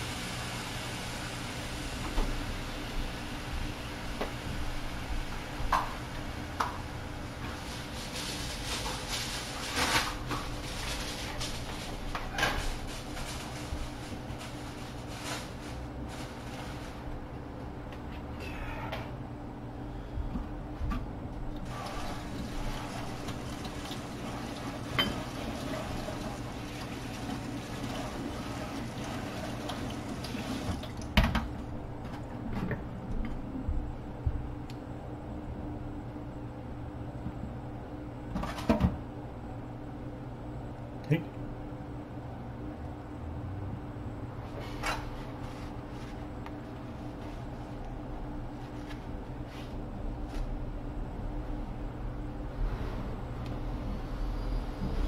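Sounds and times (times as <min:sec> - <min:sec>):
water running in kitchen: 0:00.0 - 0:17.2, 0:21.6 - 0:32.8
steady low hum: 0:00.0 - 0:28.8, 0:29.4 - 0:55.0.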